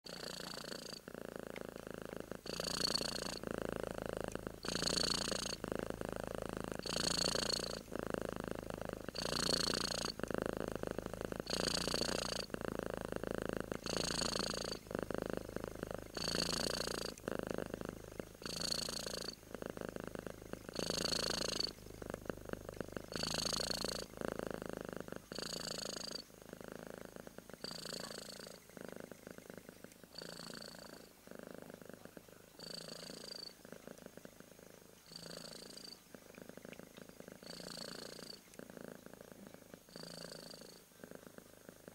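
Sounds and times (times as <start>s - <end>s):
cat purring: 0.0s - 41.9s.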